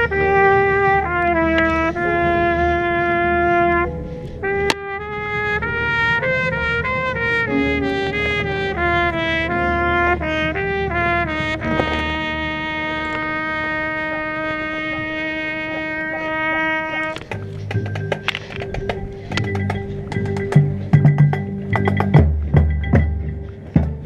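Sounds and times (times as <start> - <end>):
marching band brass playing: 0.0 - 18.2.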